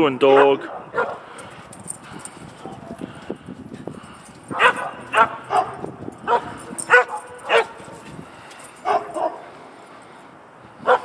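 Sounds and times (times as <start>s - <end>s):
dog barking: 0.3s - 1.3s, 4.5s - 8.0s, 8.8s - 9.5s.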